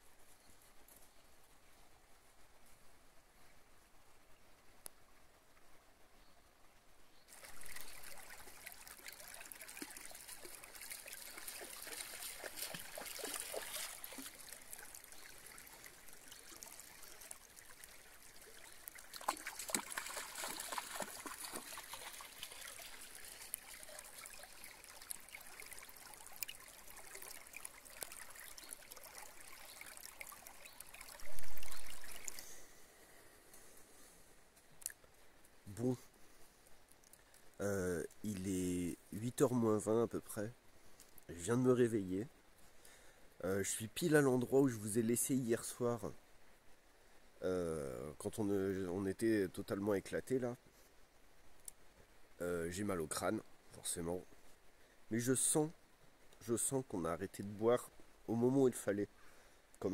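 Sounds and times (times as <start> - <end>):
dog splashing through water: 7.3 - 16.8, 19.0 - 24.3
river rippling over stones: 7.3 - 40.4.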